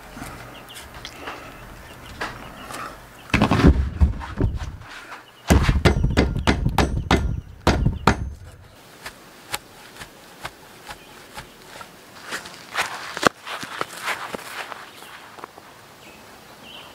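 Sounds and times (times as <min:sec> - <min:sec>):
hammer striking wooden log: 0:05.5 - 0:11.5.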